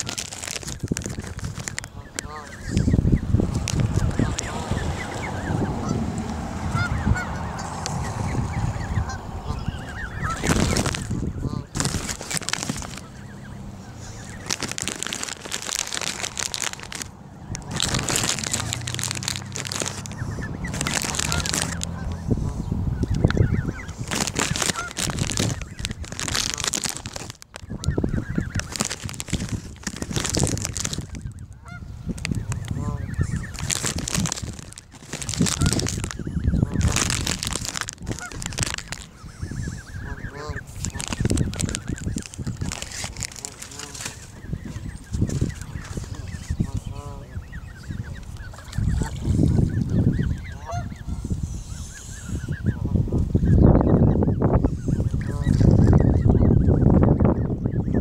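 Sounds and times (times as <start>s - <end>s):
geese honking: 1.8s - 3.4s, 4.0s - 27.0s, 31.2s - 33.8s, 34.6s - 42.5s, 43.2s - 58.0s
low rumble: 3.0s - 11.7s
water splashing: 10.0s - 22.1s, 24.0s - 27.4s.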